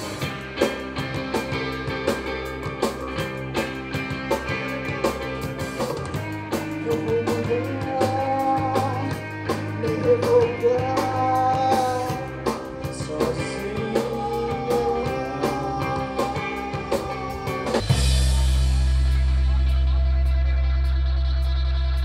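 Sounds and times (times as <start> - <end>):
person singing: 0.0 - 20.8
bass guitar: 0.0 - 22.0
distorted electric guitars: 0.0 - 22.0
drum kit beat: 0.0 - 22.0.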